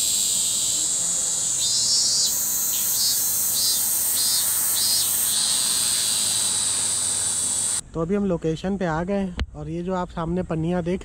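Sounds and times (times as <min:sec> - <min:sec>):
cicadas high-pitched drone: 0:00.0 - 0:07.8
lower pulsing insect call: 0:00.0 - 0:07.8.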